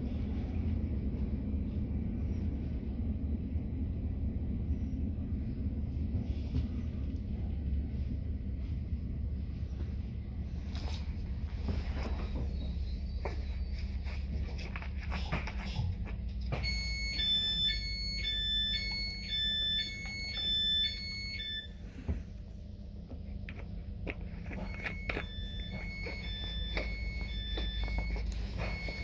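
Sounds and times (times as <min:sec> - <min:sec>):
diesel railcar humming: 0:00.0 - 0:29.0
two-tone door warning beeps: 0:16.4 - 0:21.8, 0:24.3 - 0:29.0.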